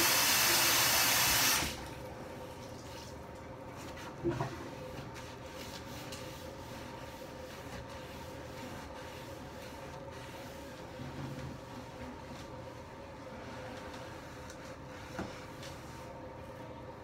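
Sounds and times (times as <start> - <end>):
sponge rubbing countertop: 3.8 - 16.2.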